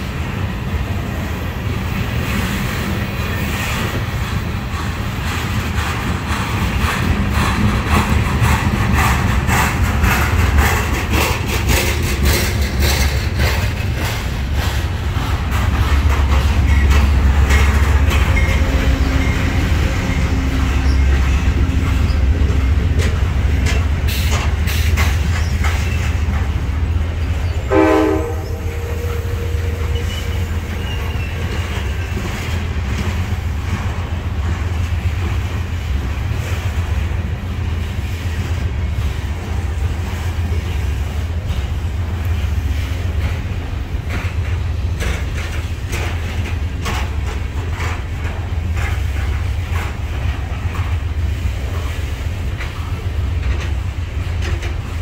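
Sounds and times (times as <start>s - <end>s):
freight train rumbling past: 0.0s - 55.0s
wheels clicking over rail joints: 2.1s - 55.0s
train horn: 27.7s - 32.0s.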